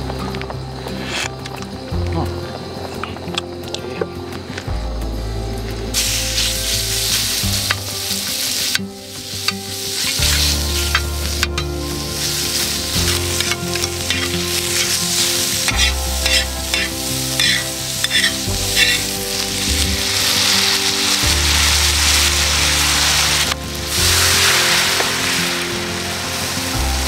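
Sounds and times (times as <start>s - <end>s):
food sizzling in a pan: 6.0s - 27.0s
utensil stirring and scraping: 15.7s - 19.1s.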